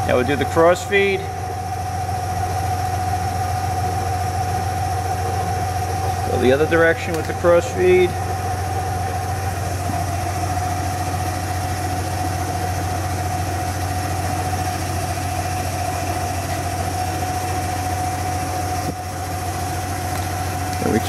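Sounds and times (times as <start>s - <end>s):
constant whine: 0.0s - 21.0s
lathe motor humming: 0.0s - 21.0s.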